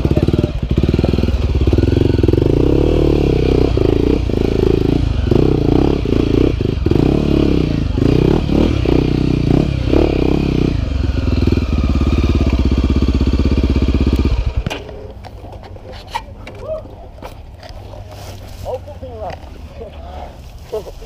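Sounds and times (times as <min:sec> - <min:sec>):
dirt bike engine revving: 0:00.0 - 0:14.8.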